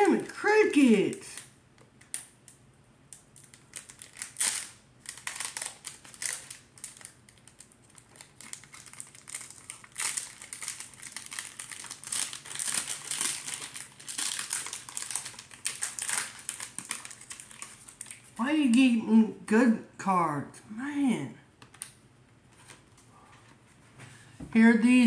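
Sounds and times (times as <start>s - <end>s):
foil wrapper crinkling: 3.2s - 18.4s.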